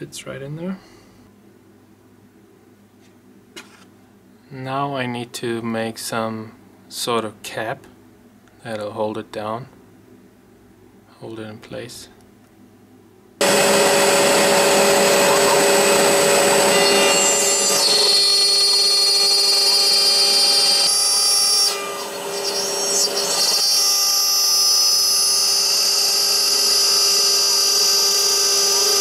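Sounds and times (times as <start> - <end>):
router spindle whine cutting plastic: 13.4 - 29.0.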